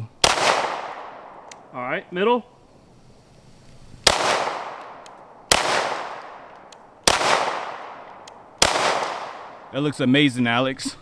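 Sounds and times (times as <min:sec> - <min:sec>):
pistol shots with echo: 0:00.2 - 0:01.5, 0:04.0 - 0:09.7.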